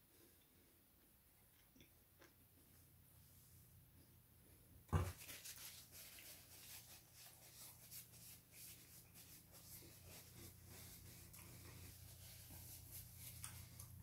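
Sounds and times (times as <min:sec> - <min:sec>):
chewing food: 0:00.4 - 0:02.8
thump: 0:04.9 - 0:05.2.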